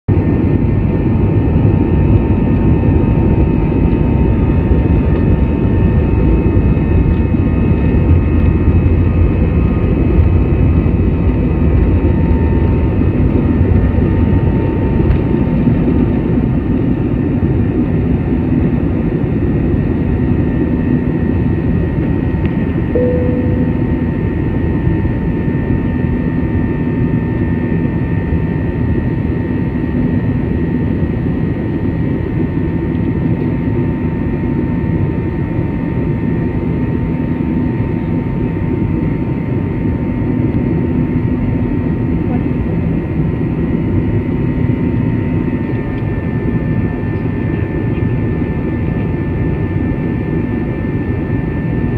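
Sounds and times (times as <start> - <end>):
jet engine rush in cabin: 0.1 - 51.9
thin steady whine: 22.9 - 26.5
brief short tone: 23.0 - 24.4.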